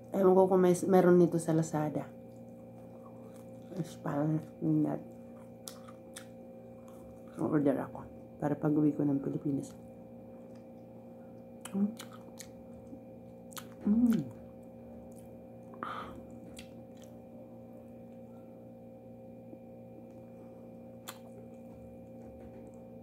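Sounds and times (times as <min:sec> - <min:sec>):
steady background hum: 0:00.0 - 0:23.0
person chewing food: 0:02.3 - 0:03.7, 0:05.1 - 0:07.4, 0:10.4 - 0:17.3, 0:21.0 - 0:22.2
person humming mm: 0:13.8 - 0:14.4, 0:15.7 - 0:16.3
breathy sound: 0:15.8 - 0:16.3.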